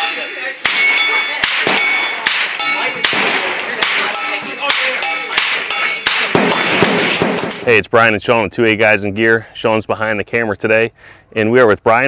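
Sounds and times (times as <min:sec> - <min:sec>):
lingering metallic ring: 0:00.0 - 0:07.7.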